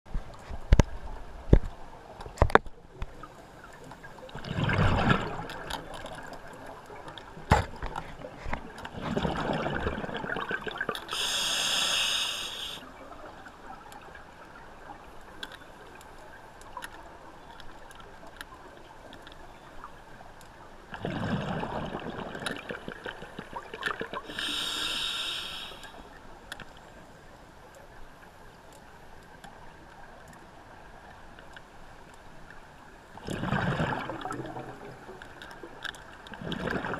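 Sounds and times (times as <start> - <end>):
regulator hiss of inhaled air: 11.1 - 12.9, 24.3 - 26.0
bubbling exhalation underwater: 21.0 - 24.4, 33.2 - 34.9.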